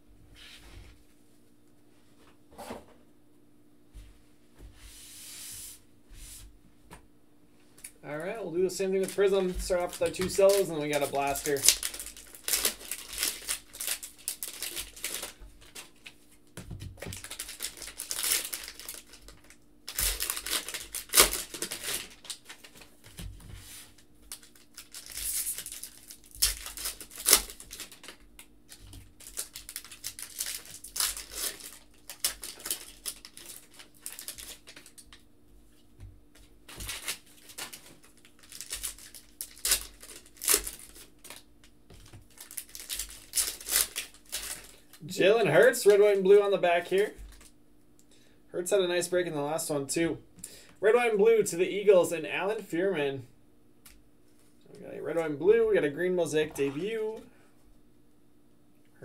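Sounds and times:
plastic wrappers crinkling and tearing: 0:07.8 - 0:35.3, 0:36.4 - 0:46.2, 0:46.9 - 0:47.5.

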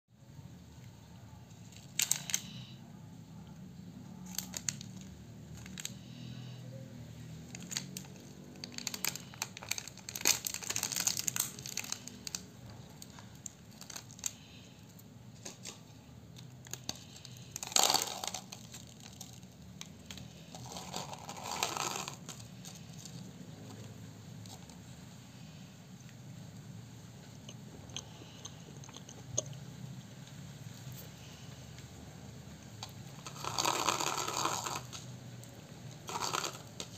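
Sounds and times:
faint low hum: 0:00.1 - 0:36.9
plastic sachets crinkling and tearing: 0:01.7 - 0:02.6, 0:04.2 - 0:06.2, 0:07.5 - 0:14.6, 0:15.4 - 0:23.2, 0:36.0 - 0:36.9.

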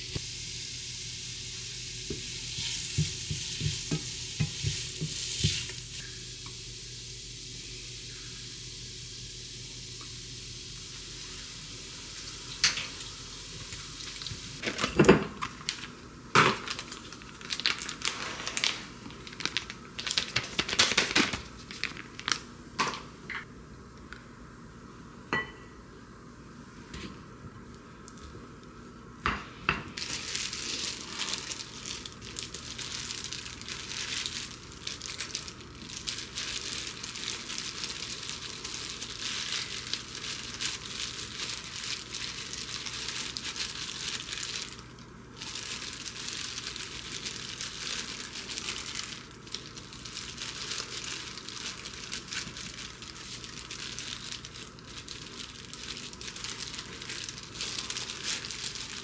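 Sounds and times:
plastic gloves crinkling: 0:02.1 - 0:06.1, 0:13.4 - 0:22.6, 0:29.9 - 0:59.0.

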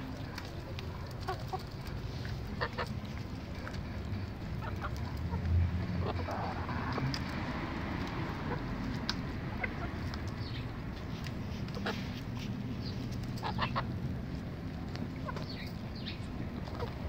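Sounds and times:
beaks pecking at food: 0:00.0 - 0:17.0
chicks clucking softly: 0:14.9 - 0:17.0.

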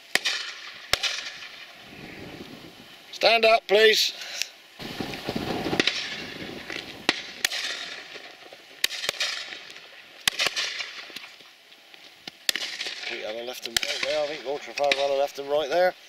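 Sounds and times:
distant shotgun shots: 0:00.0 - 0:01.6, 0:04.8 - 0:11.2, 0:12.5 - 0:15.2.

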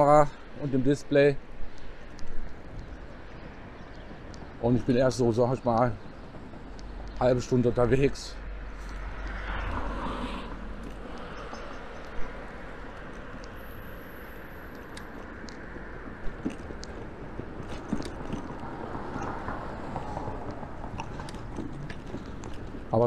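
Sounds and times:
bicycle tyre and wind noise: 0:00.0 - 0:23.0
road traffic: 0:00.0 - 0:23.0.

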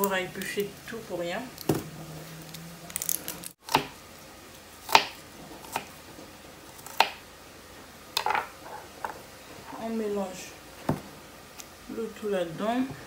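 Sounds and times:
knife chopping on wooden board: 0:03.7 - 0:04.0, 0:04.9 - 0:05.9.

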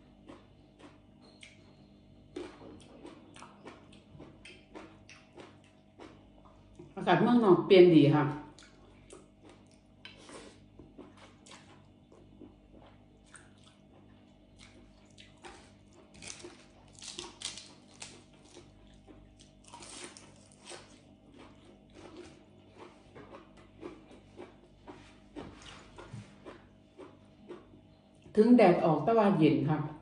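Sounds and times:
person chewing food: 0:00.0 - 0:07.0, 0:08.5 - 0:28.3
crisp lettuce crackles: 0:15.4 - 0:22.9.

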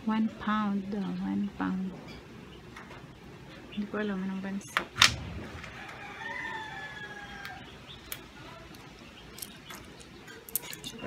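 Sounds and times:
rooster crowing: 0:05.4 - 0:07.8.

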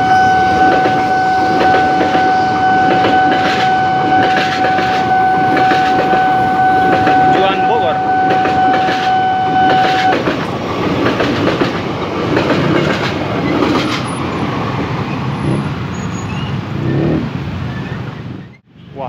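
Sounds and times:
level crossing alarm tone: 0:00.0 - 0:10.2
wheels clicking over rails: 0:00.0 - 0:16.0
train rumbling past: 0:00.0 - 0:19.0.

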